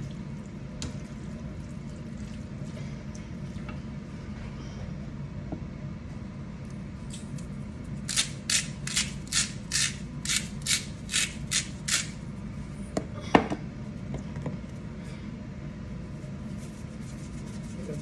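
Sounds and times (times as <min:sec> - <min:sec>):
spice grinder grinding: 0:08.1 - 0:12.2.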